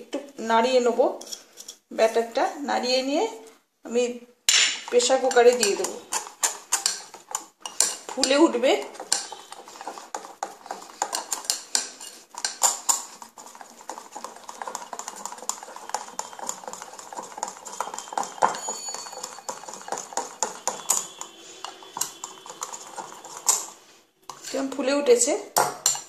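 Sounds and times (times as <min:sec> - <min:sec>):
whisk clicking against glass bowl: 0:04.8 - 0:24.8.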